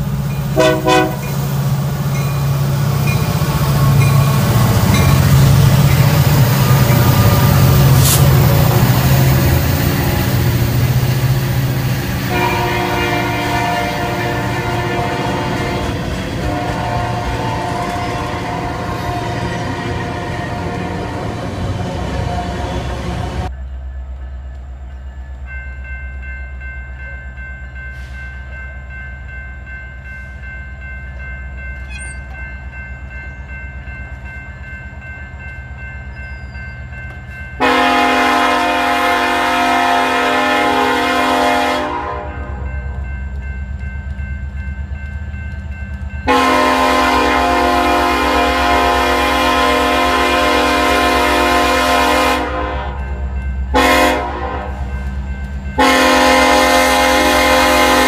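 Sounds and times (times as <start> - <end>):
crossing warning bell ringing: 0.0 - 58.0
low rumble of train: 0.0 - 58.0
locomotive air horn blasts: 0.6 - 1.4, 12.2 - 23.5, 37.6 - 42.7, 46.3 - 54.9, 55.8 - 58.0.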